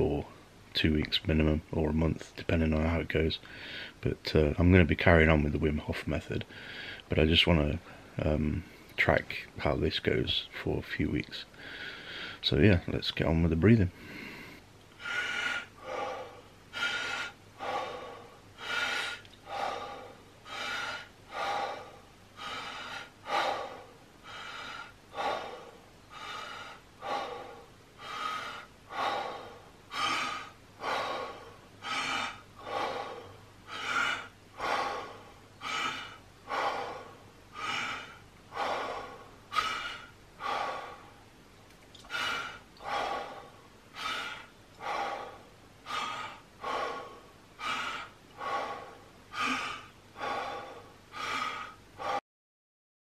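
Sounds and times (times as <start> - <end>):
man breathing forcefully: 3.5 - 4.0, 6.5 - 7.1, 11.6 - 12.4, 13.9 - 52.2.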